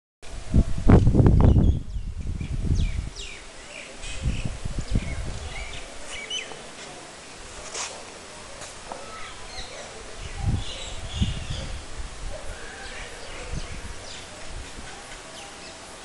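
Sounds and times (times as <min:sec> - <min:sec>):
low microphone rumble: 0:00.3 - 0:06.1
birds chirping: 0:01.4 - 0:06.7, 0:08.9 - 0:16.0.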